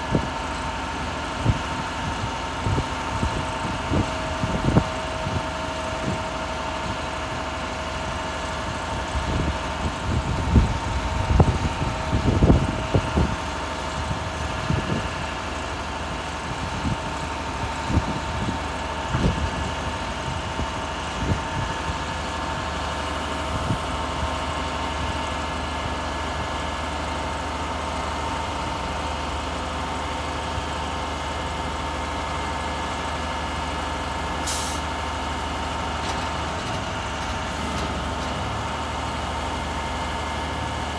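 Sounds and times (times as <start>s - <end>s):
diesel engine running: 0.0s - 40.9s
short hiss: 34.5s - 34.8s.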